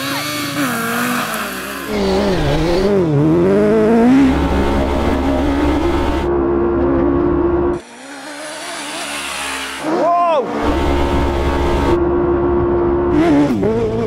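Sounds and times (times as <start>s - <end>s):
racing engine accelerating: 0.0s - 14.0s.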